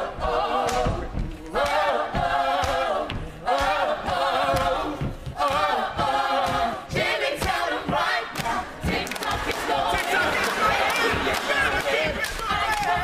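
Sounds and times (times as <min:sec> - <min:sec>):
choir singing a cappella: 0:00.0 - 0:13.0.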